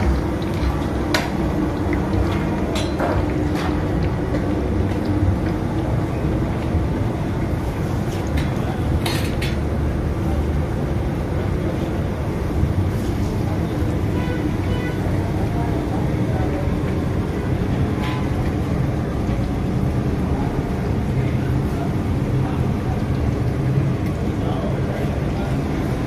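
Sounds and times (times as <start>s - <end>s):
deep fryer roar: 0.0s - 26.0s.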